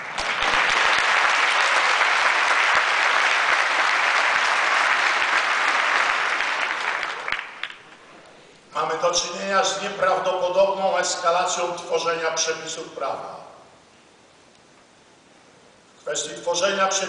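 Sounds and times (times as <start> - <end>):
large audience applauding: 0.0 - 8.0.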